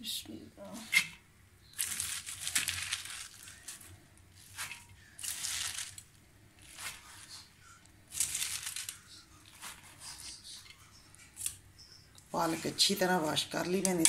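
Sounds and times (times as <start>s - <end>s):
spinach leaves rustling and crunching: 1.7s - 10.5s.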